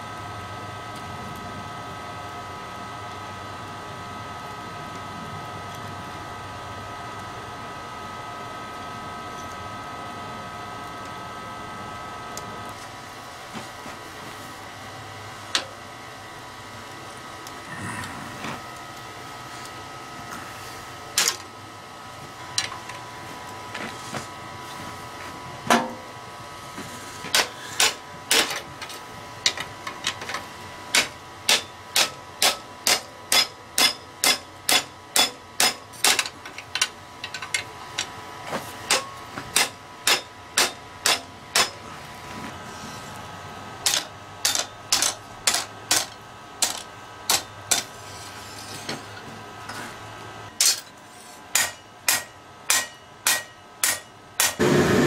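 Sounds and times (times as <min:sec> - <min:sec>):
hammer striking hot steel: 0:27.3 - 0:28.6, 0:30.9 - 0:36.4, 0:38.9 - 0:41.8, 0:43.8 - 0:49.1, 0:50.6 - 0:55.0.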